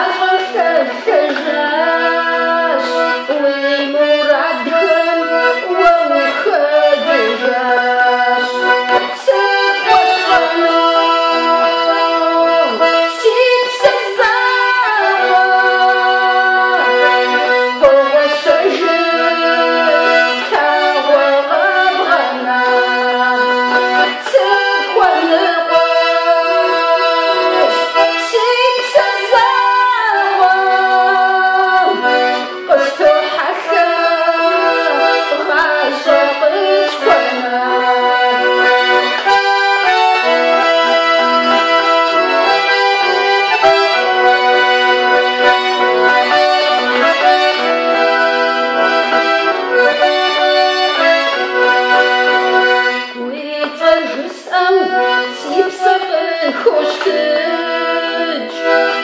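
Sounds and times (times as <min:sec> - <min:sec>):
woman singing: 0:00.0 - 0:41.2, 0:53.1 - 0:59.0
accordion playing: 0:00.0 - 0:59.0.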